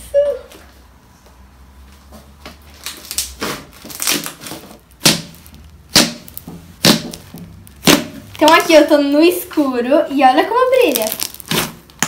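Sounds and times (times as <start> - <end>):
slime squishing: 2.7 - 9.5, 10.5 - 12.0.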